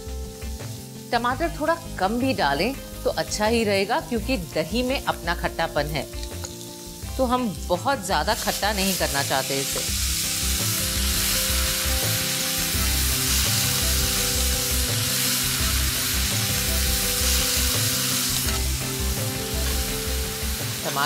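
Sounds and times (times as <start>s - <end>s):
food sizzling in hot oil: 0.0s - 21.0s.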